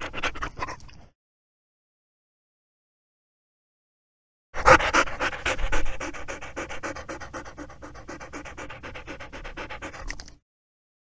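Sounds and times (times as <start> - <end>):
dog panting rapidly: 0.0 - 0.7, 4.6 - 10.4.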